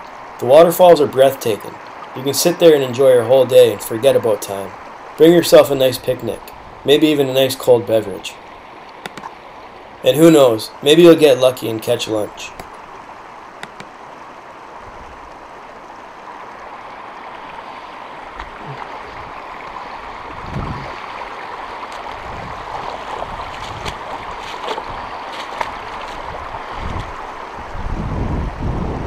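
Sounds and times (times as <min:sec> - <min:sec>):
river water running over rocks: 0:00.0 - 0:28.7
dull low thumps: 0:20.2 - 0:21.1, 0:22.1 - 0:29.0.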